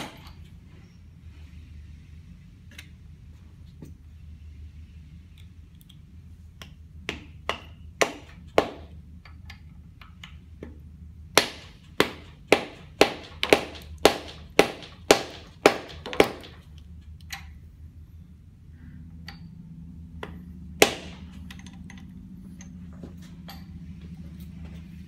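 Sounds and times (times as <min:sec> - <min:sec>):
rubber mallet knocking on metal: 0:11.4 - 0:16.6.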